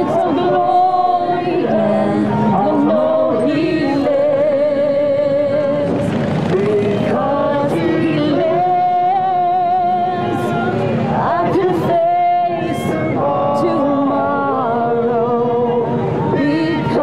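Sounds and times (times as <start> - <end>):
choir-like singing with music: 0.0 - 17.0.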